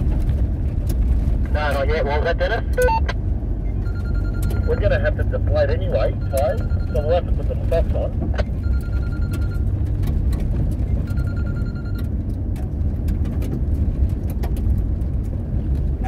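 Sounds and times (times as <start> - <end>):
engine and tyres rumbling on gravel: 0.0 - 16.0
high steady tone: 3.8 - 7.4
gravel clicks and rattles: 12.0 - 16.0.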